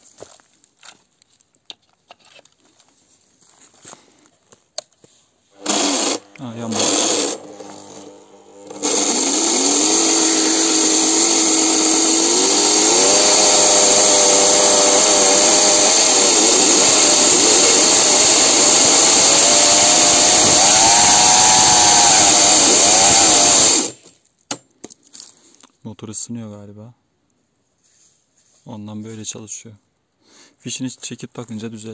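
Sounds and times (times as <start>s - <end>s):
electric motor whining: 5.6s - 24.0s.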